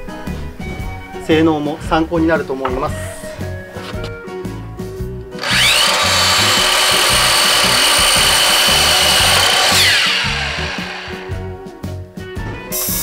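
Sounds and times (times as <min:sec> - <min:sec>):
saw blade cutting wood: 0:05.4 - 0:11.5
miter saw motor whine: 0:05.4 - 0:11.6.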